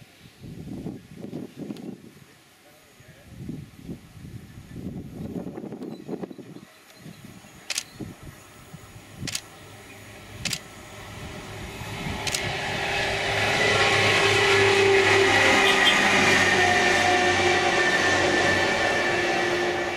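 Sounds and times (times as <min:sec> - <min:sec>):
train passing on rails: 0:02.9 - 0:19.9
sharp clicks: 0:07.7 - 0:07.9, 0:09.2 - 0:09.5, 0:10.4 - 0:10.6, 0:12.2 - 0:12.5.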